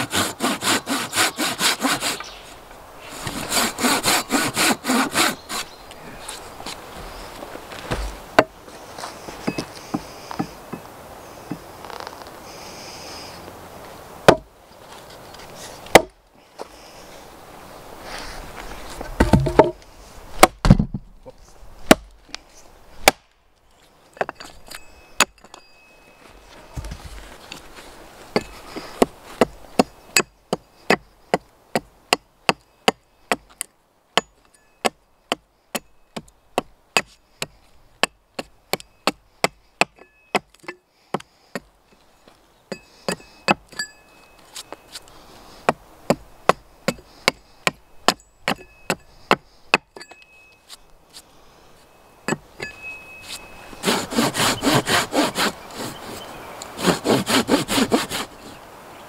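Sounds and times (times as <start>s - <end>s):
folding saw sawing wood: 0.0s - 10.6s, 53.2s - 58.6s
axe chopping wooden post: 7.9s - 8.6s, 14.2s - 14.5s, 15.9s - 16.2s, 19.2s - 19.8s, 20.4s - 21.1s, 21.8s - 22.2s, 23.0s - 23.3s, 28.3s - 33.5s, 34.2s - 41.7s, 45.6s - 50.2s.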